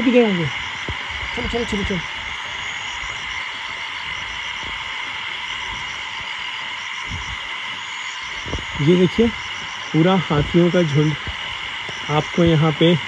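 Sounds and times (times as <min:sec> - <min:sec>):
frogs trilling: 0:00.0 - 0:13.0
insects chirping: 0:00.0 - 0:13.0.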